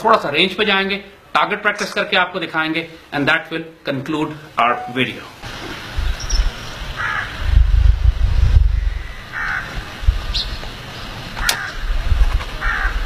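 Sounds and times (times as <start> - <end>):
wind rumble on microphone: 5.9 - 10.7, 11.4 - 13.0
bird calling: 6.2 - 7.4, 8.7 - 11.8.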